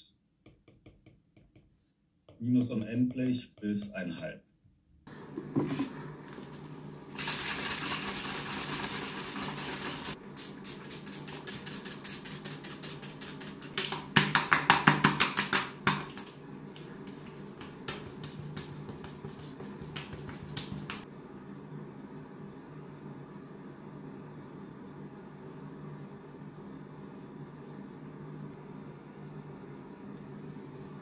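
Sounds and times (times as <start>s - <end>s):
hands patting skin: 10.4s - 21.0s.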